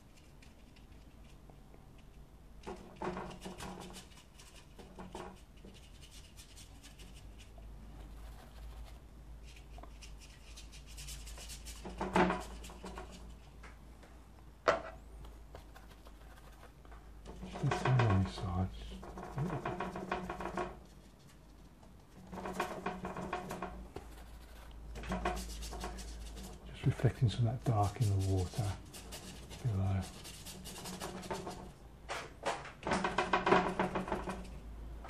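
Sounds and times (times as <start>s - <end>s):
paintbrush rubbing on paper: 3.2s - 13.4s, 15.6s - 16.8s, 24.0s - 31.8s.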